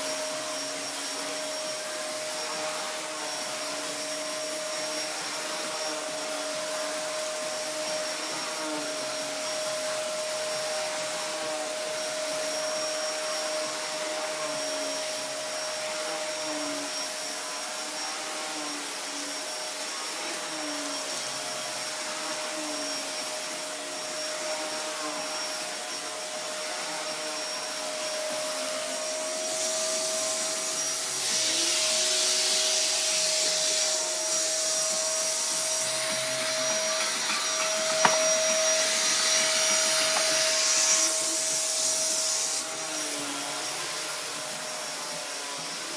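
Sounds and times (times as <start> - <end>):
vacuum cleaner motor whine: 0.0 - 45.9
brushroll on carpet: 19.4 - 45.9.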